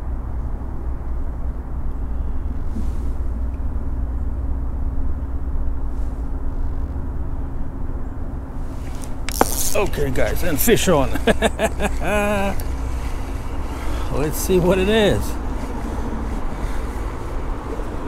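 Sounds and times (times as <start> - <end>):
low rumble of road traffic: 0.0 - 18.0
low steady hum: 0.0 - 18.0.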